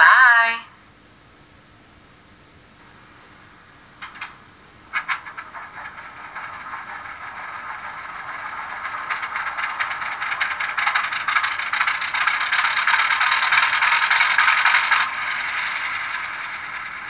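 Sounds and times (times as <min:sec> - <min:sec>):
diesel engine starting up: 0:04.9 - 0:17.0.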